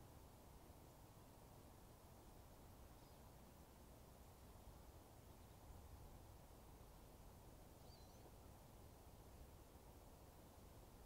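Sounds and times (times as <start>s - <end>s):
faint outdoor background noise: 0.0s - 11.0s
faint high bird chirp: 2.9s - 3.3s, 5.3s - 5.7s, 7.7s - 8.4s.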